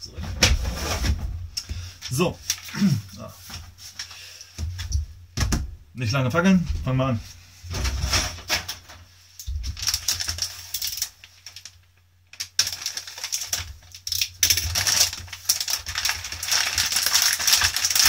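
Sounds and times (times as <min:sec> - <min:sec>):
plastic bag crinkling: 0:09.6 - 0:18.0.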